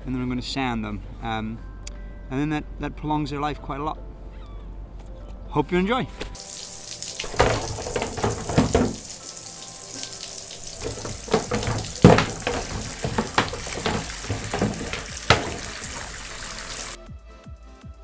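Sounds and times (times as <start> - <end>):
tap water running into bathtub: 6.4 - 17.0
plastic discs knocking against tub: 7.0 - 9.2, 10.6 - 17.0.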